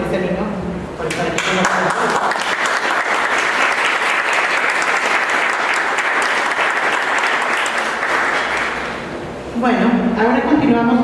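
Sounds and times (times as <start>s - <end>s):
people clapping: 1.1s - 9.2s.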